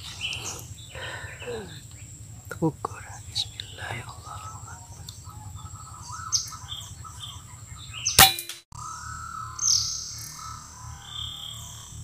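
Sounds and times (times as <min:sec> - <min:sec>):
faint bird chirps: 0:00.0 - 0:08.2, 0:08.8 - 0:12.0.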